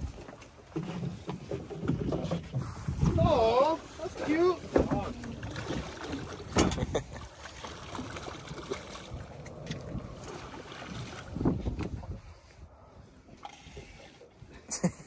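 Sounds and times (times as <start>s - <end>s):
wind noise on microphone: 1.7s - 7.1s, 8.8s - 14.0s
fish splashing in water: 5.3s - 11.4s.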